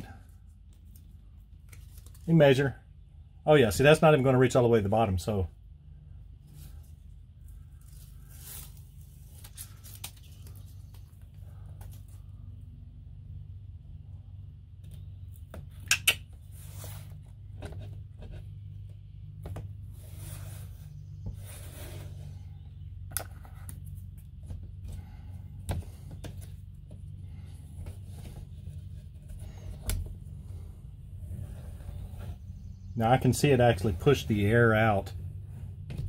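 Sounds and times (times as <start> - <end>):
steady low hum: 0.0 - 36.0
light rubbing: 19.8 - 22.6, 27.3 - 36.0.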